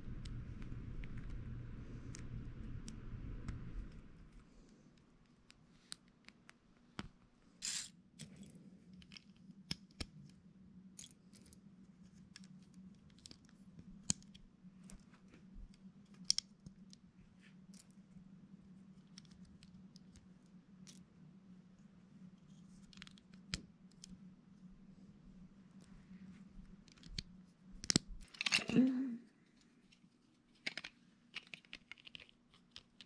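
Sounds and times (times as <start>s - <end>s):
low hum: 0.0s - 5.0s
plastic bricks clicking and snapping: 30.6s - 33.0s.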